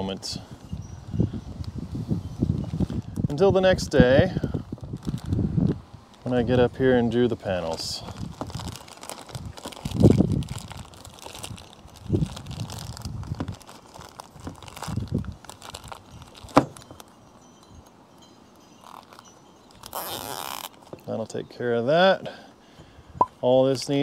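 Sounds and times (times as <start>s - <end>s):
plastic bag crinkling: 4.7s - 17.1s, 18.8s - 21.2s.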